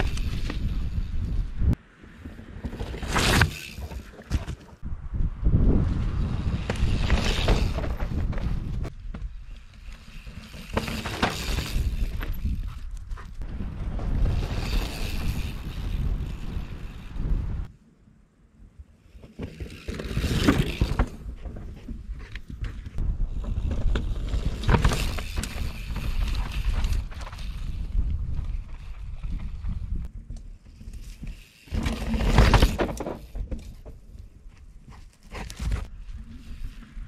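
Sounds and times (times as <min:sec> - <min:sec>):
wind buffeting microphone: 0:00.0 - 0:01.8, 0:04.8 - 0:10.7, 0:11.4 - 0:17.7, 0:20.7 - 0:30.3
mountain bike riding past: 0:00.0 - 0:17.7, 0:18.8 - 0:33.9.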